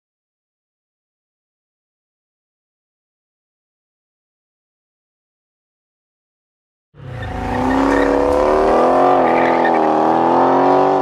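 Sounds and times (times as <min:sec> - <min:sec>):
car engine revving high: 0:07.0 - 0:11.0.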